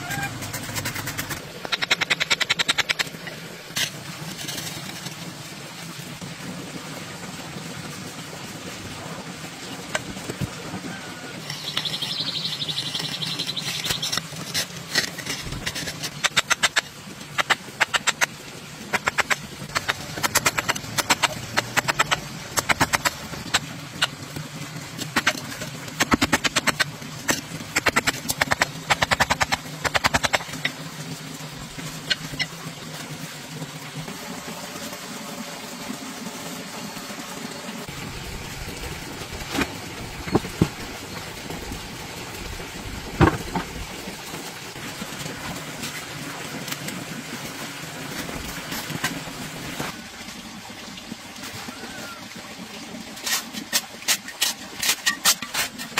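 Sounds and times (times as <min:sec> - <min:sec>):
hand tool scraping soil: 0:00.0 - 0:03.1, 0:03.7 - 0:05.2, 0:13.0 - 0:18.3, 0:53.2 - 0:55.9.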